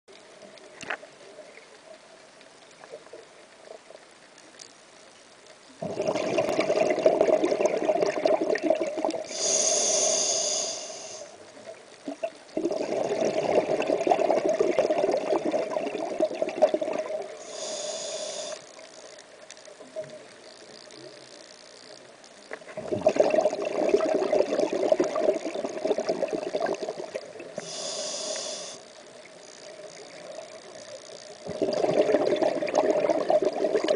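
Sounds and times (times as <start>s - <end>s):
gurgling exhaled bubbles: 5.8s - 9.4s, 12.1s - 17.4s, 22.7s - 27.6s, 31.4s - 33.9s
regulator inhale hiss: 9.2s - 11.4s, 17.4s - 18.9s, 27.5s - 29.0s.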